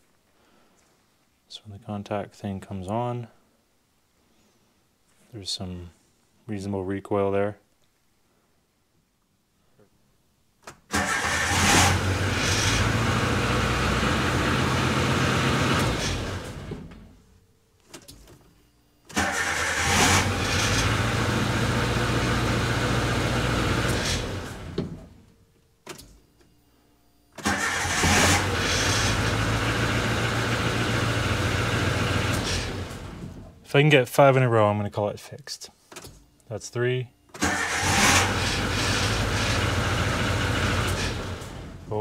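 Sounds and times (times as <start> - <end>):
car engine starting and idling: 10.9 - 17.2, 19.1 - 25.3, 27.4 - 33.6, 37.3 - 42.0.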